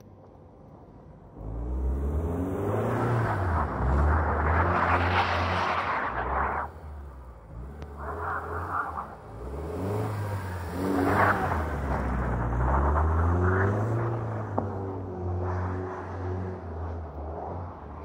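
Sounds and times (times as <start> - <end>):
car engine revving hard: 7.5 - 14.3.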